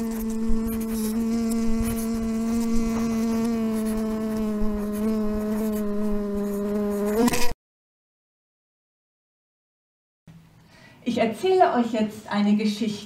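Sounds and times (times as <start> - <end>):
bumblebee buzzing: 0.0 - 7.6.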